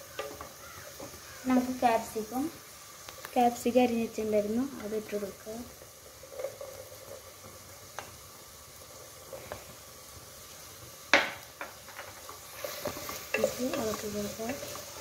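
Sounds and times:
vegetables frying in oil: 0:00.0 - 0:15.0
wooden spatula scraping pan: 0:12.4 - 0:15.0.

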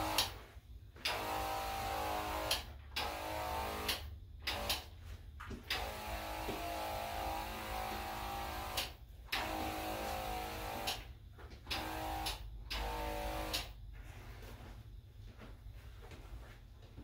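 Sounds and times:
sprayer motor whine: 0:00.0 - 0:00.5, 0:05.7 - 0:11.0.

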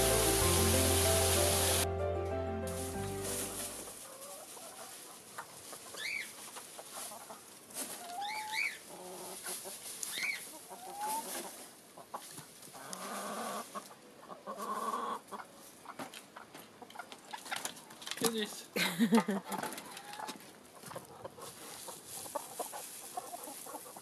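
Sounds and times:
dry straw rustling: 0:00.0 - 0:13.9, 0:21.3 - 0:24.0
chickens clucking: 0:03.0 - 0:17.8, 0:19.2 - 0:24.0.

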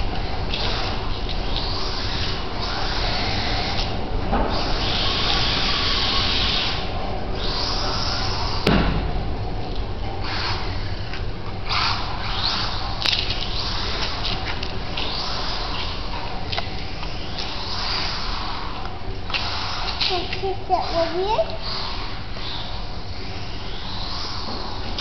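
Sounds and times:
toy truck motor whirring: 0:00.0 - 0:08.7, 0:10.2 - 0:25.0
sharp knock: 0:08.6 - 0:09.1.

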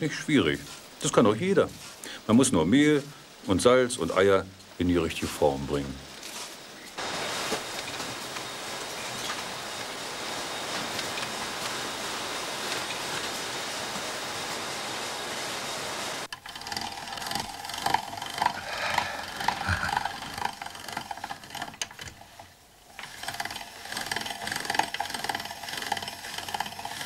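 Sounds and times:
packaging line machine noise: 0:06.3 - 0:27.0
hand-cranked pasta machine rattling: 0:16.3 - 0:27.0.

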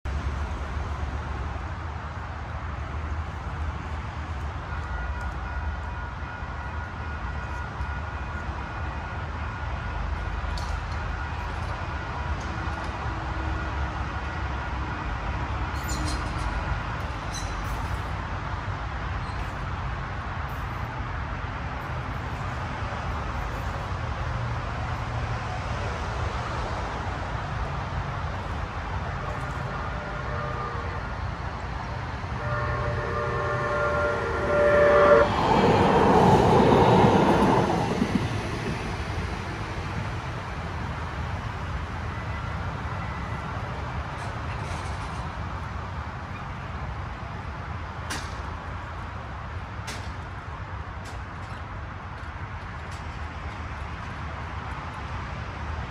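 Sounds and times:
train rolling rumble: 0:00.1 - 0:55.9
train horn chord: 0:29.2 - 0:31.2, 0:32.2 - 0:37.7.

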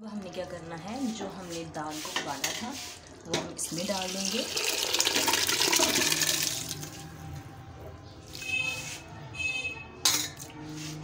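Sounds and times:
liquid pouring and splashing: 0:02.8 - 0:07.0.

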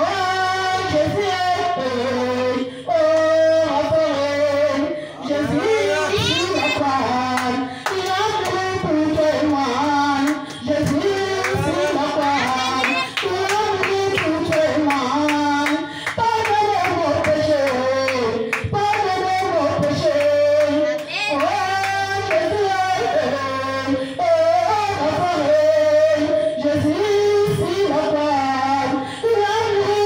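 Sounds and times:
woman singing through microphone: 0:00.0 - 0:30.0
sharp claps beat: 0:07.3 - 0:19.1, 0:19.8 - 0:22.5.

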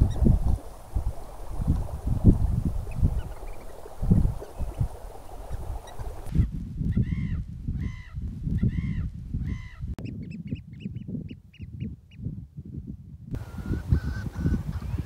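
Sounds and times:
wind on microphone: 0:00.0 - 0:15.0
wild birds calling: 0:02.9 - 0:06.3, 0:07.0 - 0:09.9.

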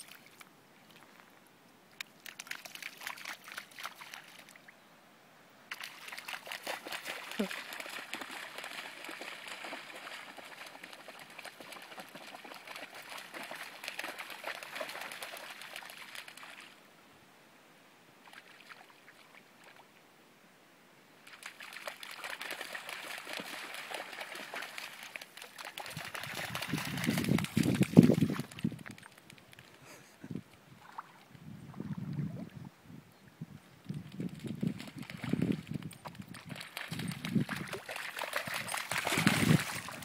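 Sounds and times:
dog splashing through shallow water: 0:02.2 - 0:04.6, 0:05.7 - 0:16.8, 0:21.2 - 0:29.7, 0:34.1 - 0:40.0.

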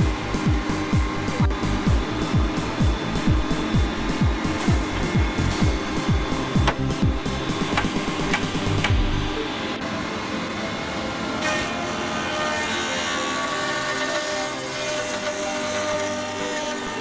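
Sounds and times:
motor running steadily: 0:00.0 - 0:17.0
cutter rasping in wood: 0:11.4 - 0:17.0.

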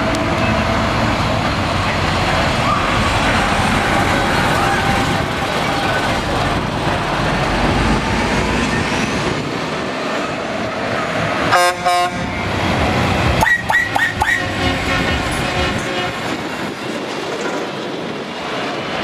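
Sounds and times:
truck horn blasts: 0:11.5 - 0:12.3, 0:13.4 - 0:16.4.

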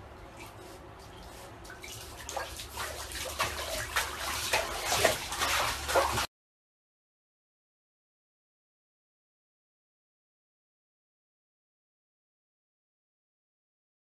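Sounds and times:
water splashing in a bathtub: 0:00.1 - 0:06.3.

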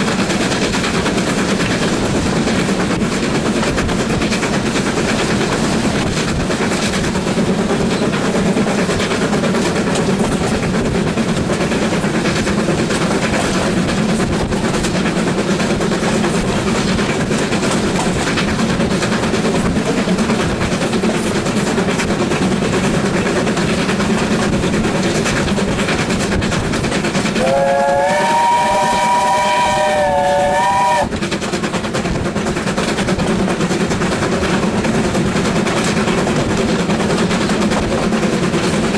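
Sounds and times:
carriage wheels on rails: 0:00.0 - 0:38.9
steam locomotive exhaust beats: 0:00.0 - 0:38.9
steam whistle: 0:27.4 - 0:31.1.

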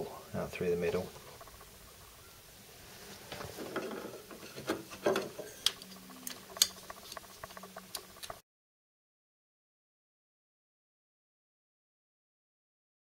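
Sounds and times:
plastic parts rubbing and clicking: 0:03.3 - 0:08.4.

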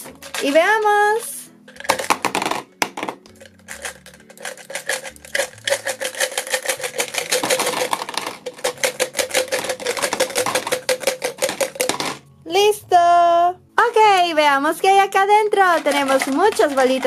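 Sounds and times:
gumballs clattering into plastic tub: 0:00.0 - 0:01.0, 0:01.6 - 0:12.3, 0:15.6 - 0:17.0.

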